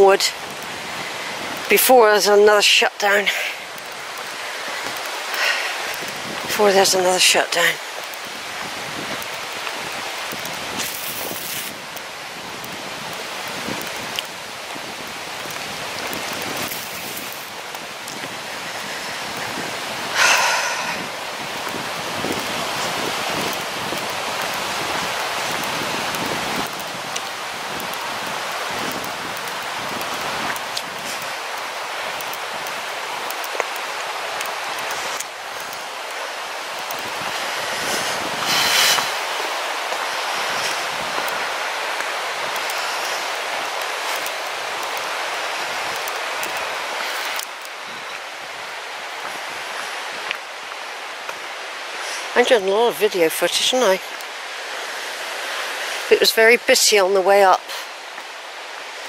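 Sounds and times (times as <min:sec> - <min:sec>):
river rushing over rocks: 0:00.0 - 0:59.0.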